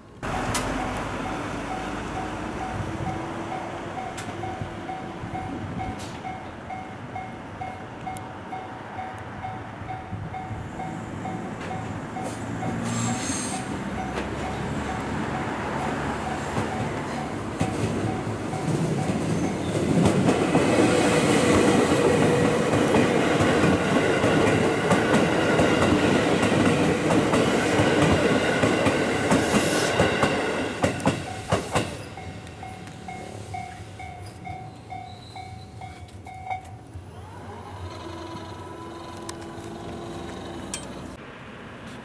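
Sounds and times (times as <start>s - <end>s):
train wheels clattering over rails: 11.4s - 35.7s
level-crossing bell dinging: 31.3s - 36.8s.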